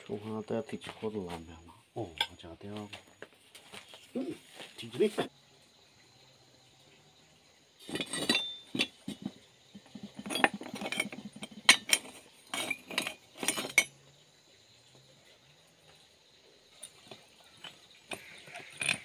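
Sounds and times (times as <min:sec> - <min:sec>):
metal pipes clinking together: 0:07.8 - 0:09.3, 0:09.9 - 0:13.9, 0:16.8 - 0:19.0.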